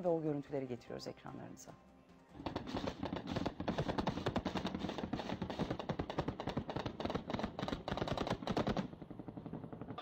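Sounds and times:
rapid gunfire: 2.4s - 10.0s.

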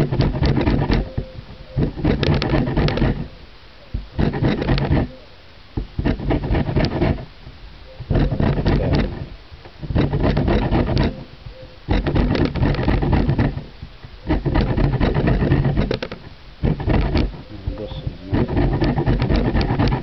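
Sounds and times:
peel grated on box grater: 0.0s - 1.1s, 1.8s - 3.3s, 4.2s - 5.1s, 6.0s - 7.3s, 8.1s - 11.2s, 11.9s - 17.4s, 18.2s - 20.0s.

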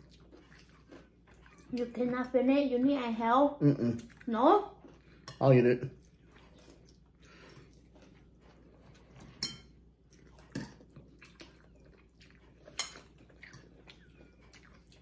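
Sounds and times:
noodles slurped and chewed: 0.0s - 2.4s, 3.9s - 15.0s
metal cutlery clinking on bowls: 9.0s - 9.8s, 12.7s - 13.7s.

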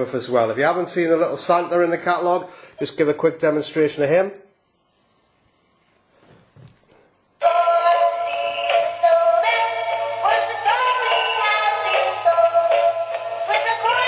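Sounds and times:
toy playing tinny synthesized song: 7.4s - 14.0s.

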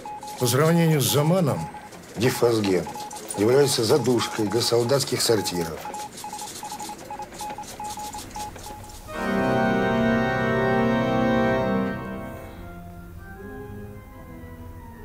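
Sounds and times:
radio crackle: 0.0s - 9.1s
morse code beeps: 0.0s - 10.1s
organ chord: 9.1s - 15.0s.

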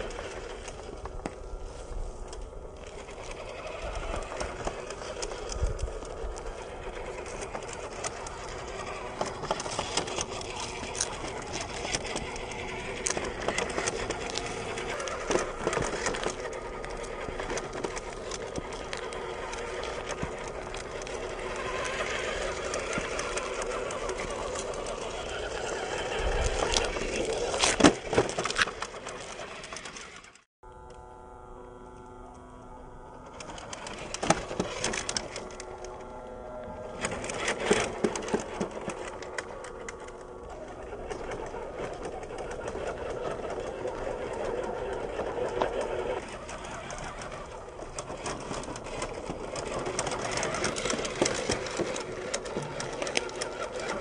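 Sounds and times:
toy truck electric motor whirring: 0.0s - 31.0s, 31.8s - 54.0s.

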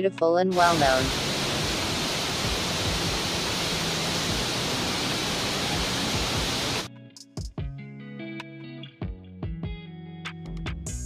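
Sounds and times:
waterfall rushing: 0.5s - 6.9s.

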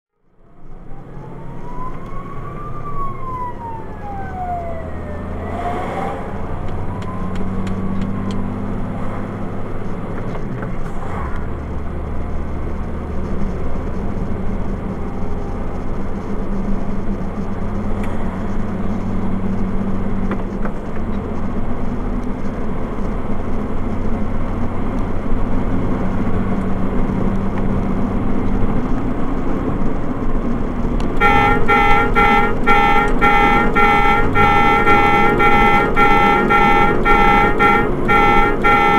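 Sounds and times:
vehicle engine drone and road noise: 0.1s - 38.9s
siren wailing: 0.4s - 8.6s, 31.2s - 38.9s
horn blaring: 31.2s - 38.9s.

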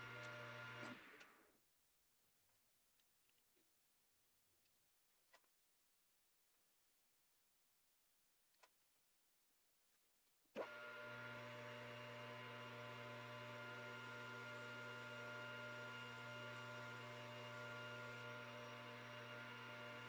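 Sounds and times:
lathe motor hum: 0.0s - 1.3s, 10.6s - 20.0s.

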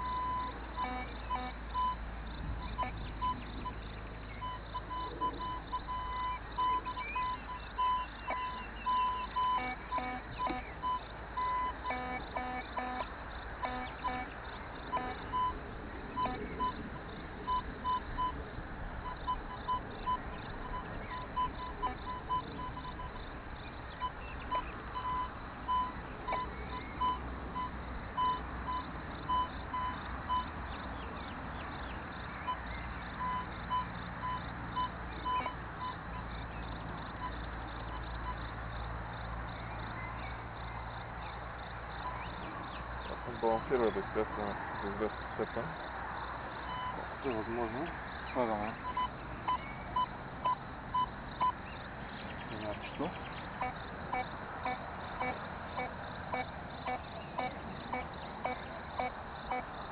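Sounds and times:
metal detector short beeps: 4.4s - 13.0s, 16.2s - 16.8s, 24.5s - 30.4s, 33.2s - 35.6s.

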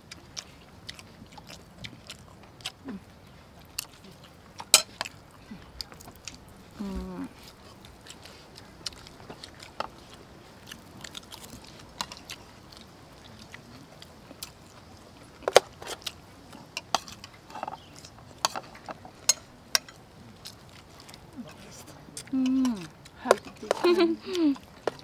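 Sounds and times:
chewing and mouth sounds: 0.0s - 25.0s.

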